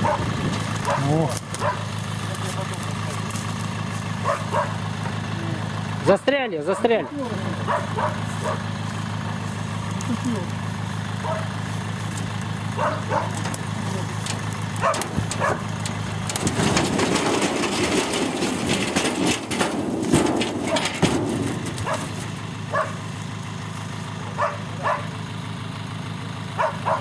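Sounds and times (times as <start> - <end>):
truck engine running: 0.0 - 27.0
logs tumbling onto ground: 11.6 - 22.7.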